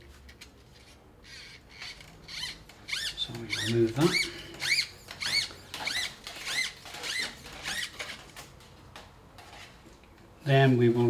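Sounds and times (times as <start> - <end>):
brush squeaking in a channel: 0.8 - 8.3.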